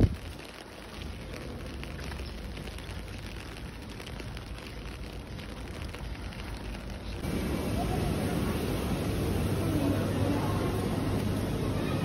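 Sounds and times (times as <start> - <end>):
light rain on wet pavement: 0.0 - 12.0.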